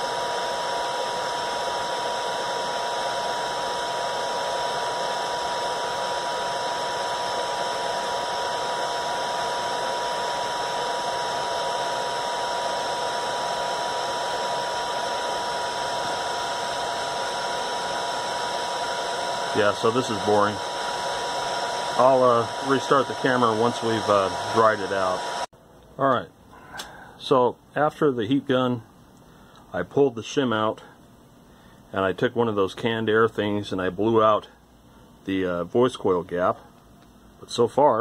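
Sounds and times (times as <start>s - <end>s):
heat gun blowing air: 0.0s - 25.5s.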